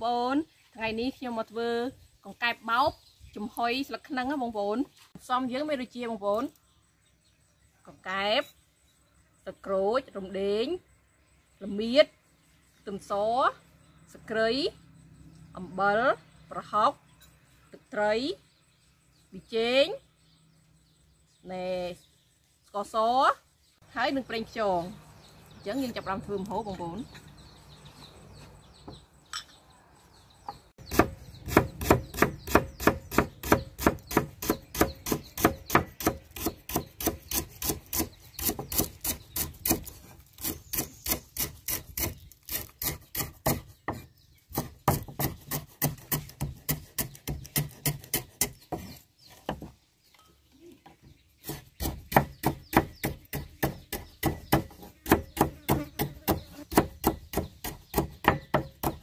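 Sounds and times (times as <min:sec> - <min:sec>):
rapid chopping strikes on wood: 0:30.8 - 0:42.2, 0:42.8 - 0:48.9, 0:51.4 - 0:59.0.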